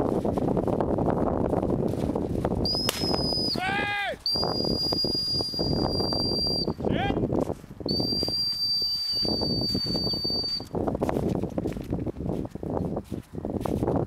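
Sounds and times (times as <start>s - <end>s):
footsteps crunching through snow: 1.4s - 2.6s, 6.8s - 14.0s
high training whistle blasts: 2.6s - 6.8s, 7.9s - 10.7s.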